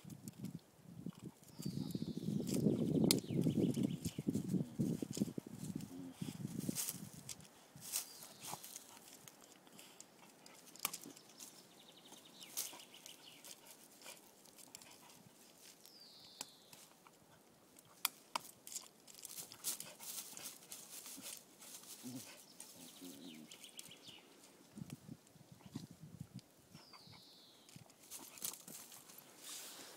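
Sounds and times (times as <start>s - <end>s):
bird chirping: 1.1s - 4.7s, 10.4s - 14.0s, 15.8s - 17.0s, 20.3s - 24.5s, 26.7s - 29.3s.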